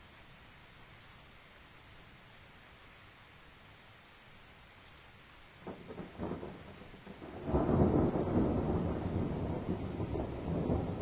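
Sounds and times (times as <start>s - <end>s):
rolling thunder rumble: 5.6s - 11.0s
thunder crackles: 5.6s - 11.0s.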